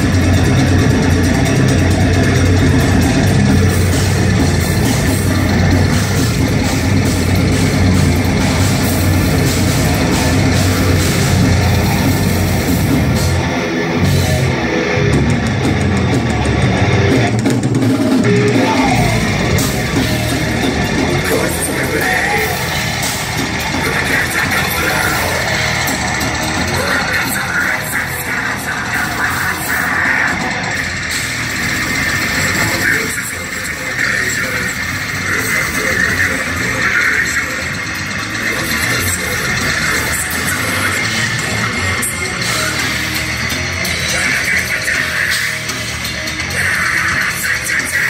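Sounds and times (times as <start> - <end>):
bass guitar: 0.0 - 48.0
drum kit: 0.0 - 48.0
electric guitars: 0.0 - 48.0.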